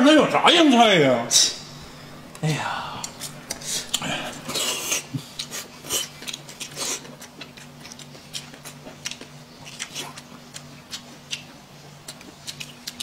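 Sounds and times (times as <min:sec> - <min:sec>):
faint low hum: 0:00.0 - 0:13.0
chewing sounds: 0:03.0 - 0:13.0.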